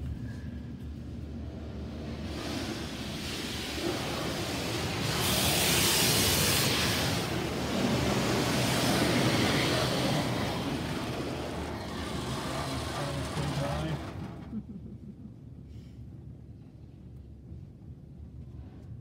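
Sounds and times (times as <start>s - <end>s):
steady low rumble: 0.0s - 19.0s
car wash spraying water: 1.0s - 14.4s
loud hiss: 2.0s - 14.1s.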